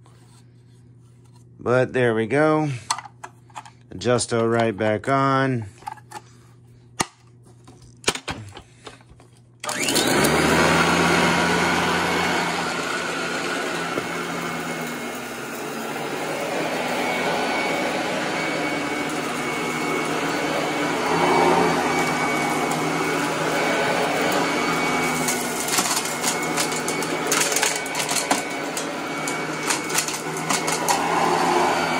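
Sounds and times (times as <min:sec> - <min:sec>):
vacuum cleaner running: 0:08.1 - 0:31.9.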